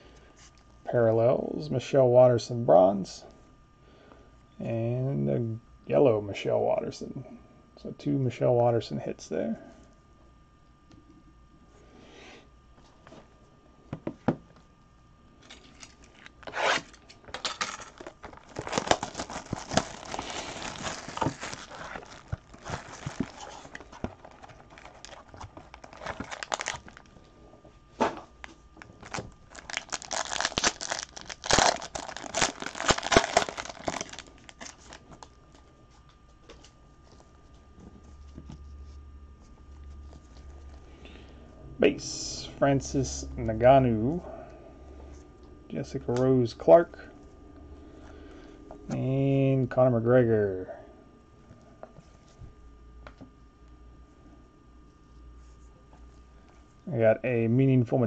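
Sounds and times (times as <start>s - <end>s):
packaging crinkling and tearing: 15.4s - 27.3s, 28.4s - 35.6s.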